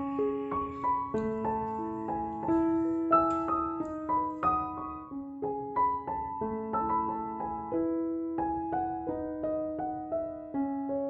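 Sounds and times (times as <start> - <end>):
gentle piano melody: 0.0 - 11.0.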